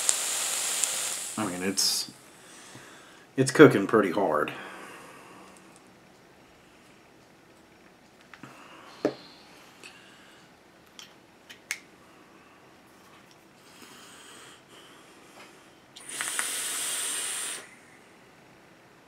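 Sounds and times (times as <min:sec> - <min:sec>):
coils crackling: 0:00.0 - 0:02.1
hiss of air drawn through atomizer: 0:00.0 - 0:02.1, 0:16.0 - 0:17.8.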